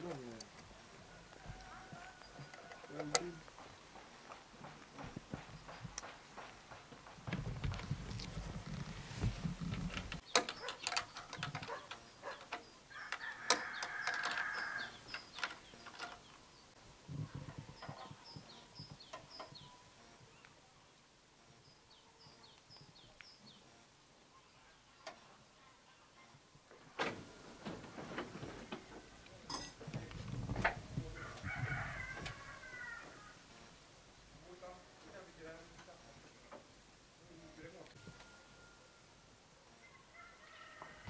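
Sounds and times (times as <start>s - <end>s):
small birds chirping: 0.0s - 26.4s
rooster crowing: 0.9s - 3.6s, 12.2s - 15.1s, 31.1s - 33.5s, 39.7s - 41.0s
hands clicking and knocking: 2.4s - 8.4s.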